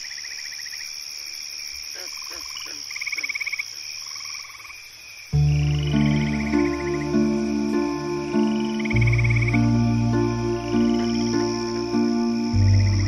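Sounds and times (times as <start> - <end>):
high insect drone: 0.0 - 13.0
low frog croaks: 1.8 - 13.0
music with deep held notes: 5.4 - 13.0
rapid pulsed trills: 5.4 - 13.0.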